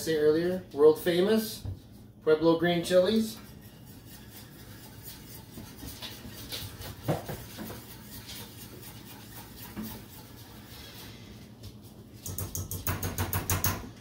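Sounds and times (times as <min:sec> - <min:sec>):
whisk scraping and tapping pan: 0:02.6 - 0:13.8
whisk knocking on pan: 0:03.4 - 0:10.7, 0:12.2 - 0:13.8.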